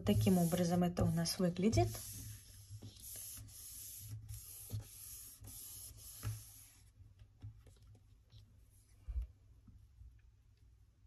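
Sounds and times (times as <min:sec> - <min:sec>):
hands rubbing paper: 0:00.0 - 0:07.0.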